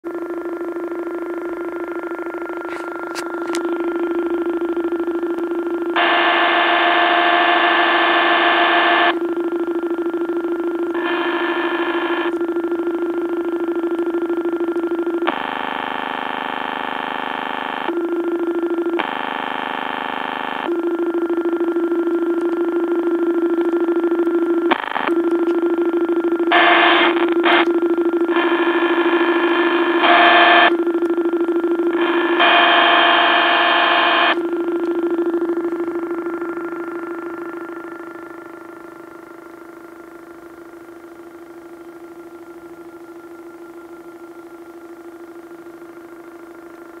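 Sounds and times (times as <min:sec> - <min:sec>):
keyboard drone: 0:00.1 - 0:40.5
harsh glitchy buzzing tones: 0:01.1 - 0:14.4, 0:15.1 - 0:40.0.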